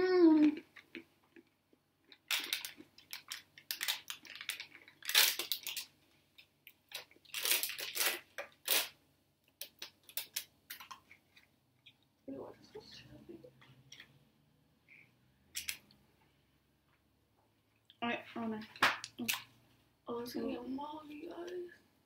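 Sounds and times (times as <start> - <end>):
plastic wrapper crinkling: 2.1 - 8.9, 9.6 - 11.5.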